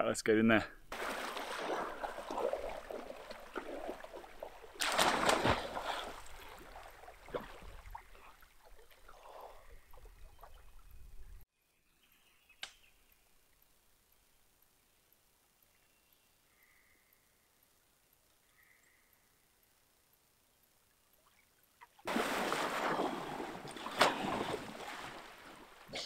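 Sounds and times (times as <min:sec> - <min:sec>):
loud splash into water: 0:00.9 - 0:04.1, 0:04.8 - 0:06.7, 0:22.1 - 0:25.6
splashing steps in water: 0:00.9 - 0:09.1, 0:22.1 - 0:25.9
paddling splashes: 0:00.9 - 0:10.8, 0:22.0 - 0:26.0.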